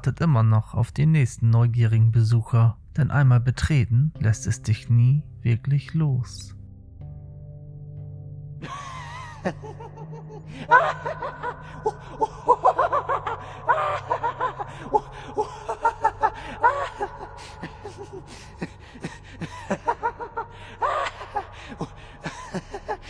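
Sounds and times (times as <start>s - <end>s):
person laughing and snickering: 8.6s - 23.0s.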